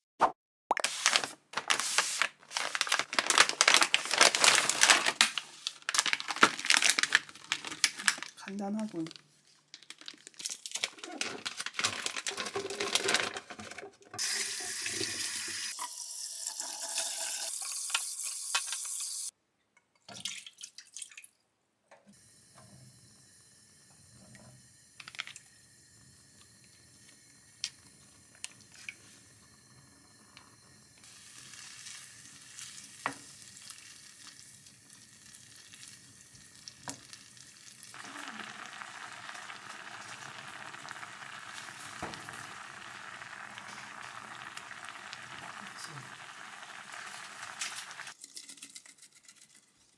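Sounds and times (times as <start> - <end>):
kitchen clatter and clicks: 9.8 - 14.2
tap water running into sink: 14.1 - 19.2.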